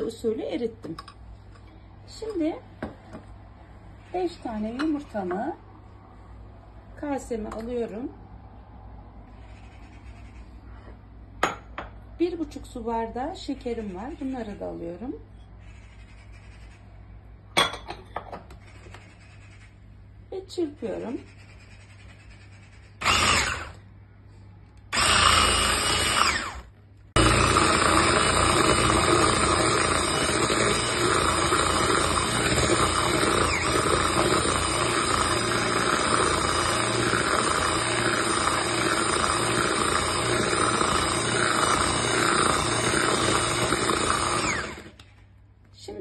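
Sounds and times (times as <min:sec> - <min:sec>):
electric hand mixer whisking: 0:23.0 - 0:23.8, 0:24.9 - 0:45.0.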